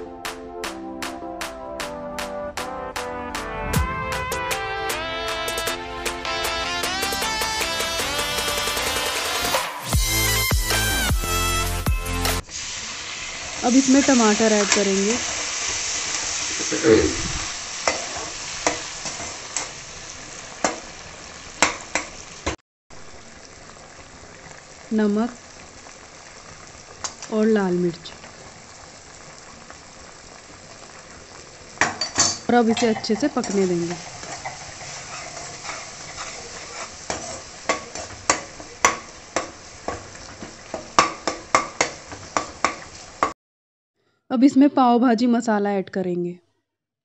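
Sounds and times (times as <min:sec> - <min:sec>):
tomatoes sizzling in butter: 0:07.0 - 0:43.4
metal spatula scraping pan: 0:32.0 - 0:40.1.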